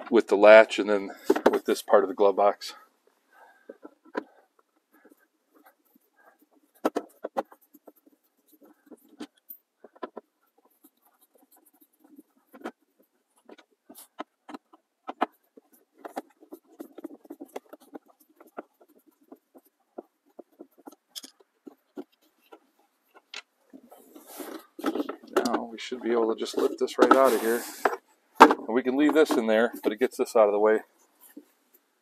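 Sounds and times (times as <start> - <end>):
plastic being handled: 0.0 - 31.9.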